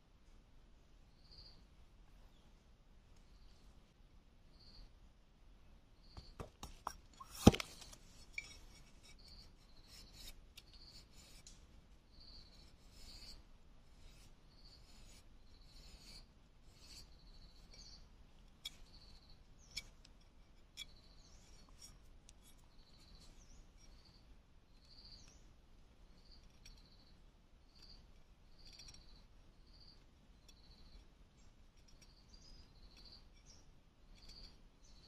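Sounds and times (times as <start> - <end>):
bamboo cracking: 6.4 - 8.4
knife scraping bamboo: 6.6 - 11.6, 12.2 - 24.0.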